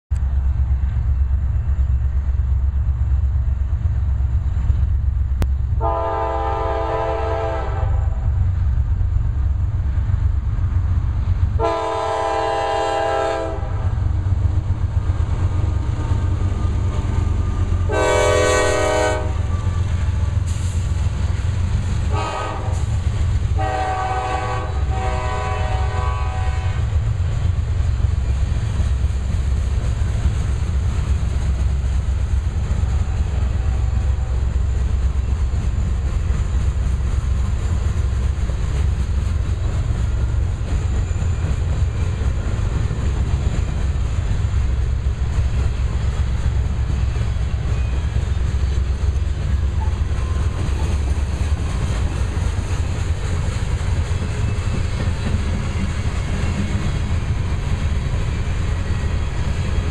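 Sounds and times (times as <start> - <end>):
freight train rumbling past: 0.1 - 59.9
locomotive air horn blasts: 5.8 - 8.3, 11.6 - 14.0, 17.9 - 19.8, 22.1 - 27.0.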